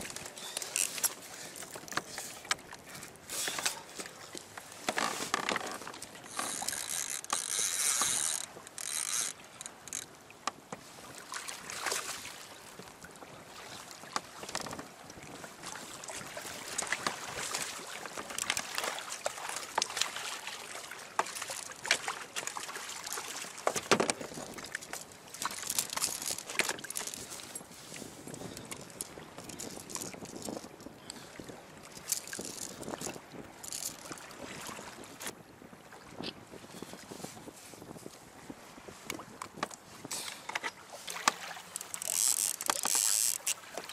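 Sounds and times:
sea water splashing against hull: 0:09.4 - 0:43.9
strong wind: 0:25.6 - 0:40.4.

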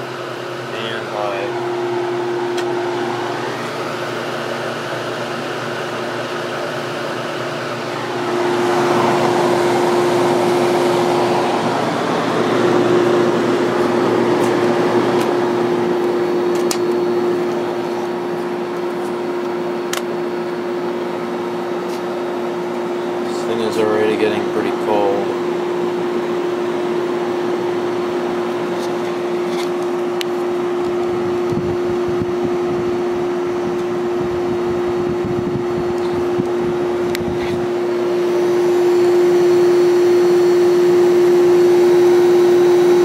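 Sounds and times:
air conditioner hum: 0:00.0 - 0:43.0
air rushing from grille: 0:07.6 - 0:19.8, 0:28.1 - 0:39.6.

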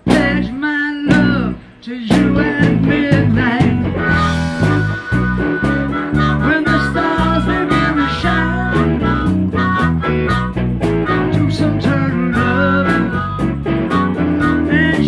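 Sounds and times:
steady drum beat: 0:00.0 - 0:00.5, 0:01.1 - 0:15.0
bass guitar: 0:00.0 - 0:15.0
electric guitar: 0:00.0 - 0:15.0
blues harmonica wailing: 0:02.2 - 0:15.0.

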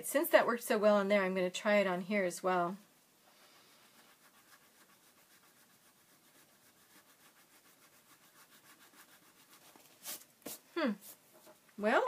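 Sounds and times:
eraser rubbing on paper: 0:03.3 - 0:11.2.

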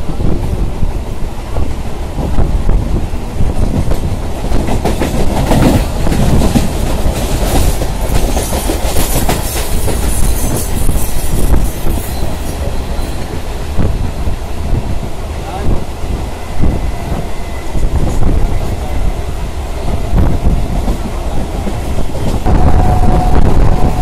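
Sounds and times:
passing train: 0:00.0 - 0:24.0
train rumble: 0:00.0 - 0:24.0
rushing air: 0:10.6 - 0:24.0.

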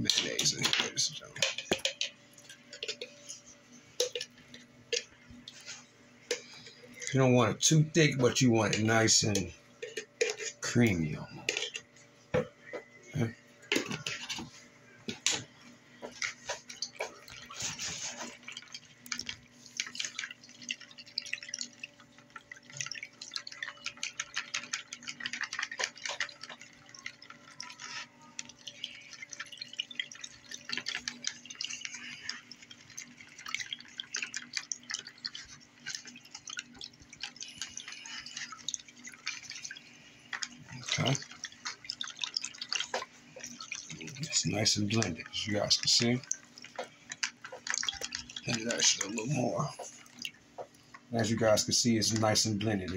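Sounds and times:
whisk clicking against container: 0:16.1 - 0:44.3.

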